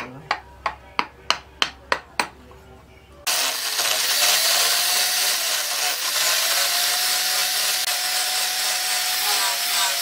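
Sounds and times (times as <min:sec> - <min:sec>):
angle grinder grinding steel: 0:03.3 - 0:10.0.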